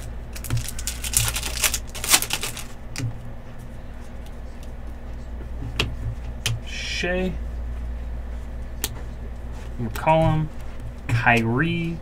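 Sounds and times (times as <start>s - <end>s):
foil wrapper tearing and crinkling: 0.0s - 2.7s
cards clicking: 0.4s - 2.7s.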